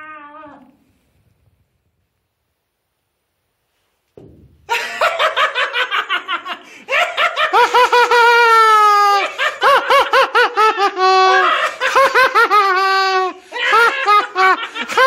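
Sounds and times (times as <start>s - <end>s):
high-pitched laughter: 4.7s - 15.0s.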